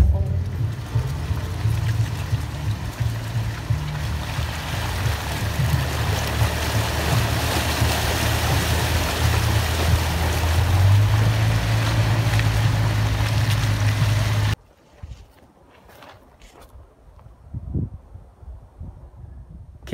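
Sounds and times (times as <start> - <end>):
truck engine droning: 0.0 - 14.6
tyres splashing through mud: 0.0 - 14.6.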